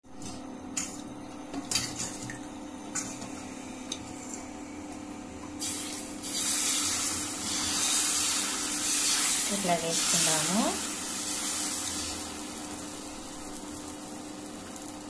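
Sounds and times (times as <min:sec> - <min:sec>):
batter sizzling on hot griddle: 0:05.6 - 0:15.0.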